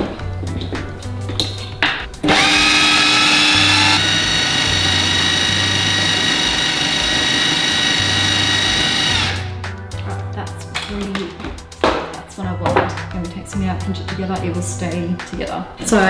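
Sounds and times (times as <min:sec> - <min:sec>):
food processor motor whining: 0:02.2 - 0:09.6.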